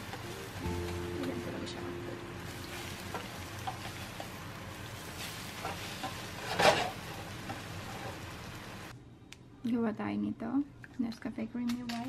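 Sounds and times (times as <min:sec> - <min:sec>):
eggs sizzling in a pan: 0:00.0 - 0:08.9.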